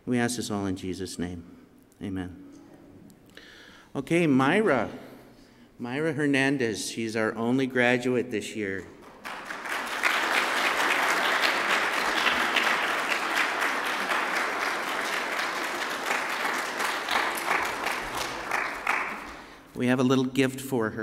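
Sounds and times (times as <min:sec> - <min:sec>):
crowd clapping: 0:09.0 - 0:19.7.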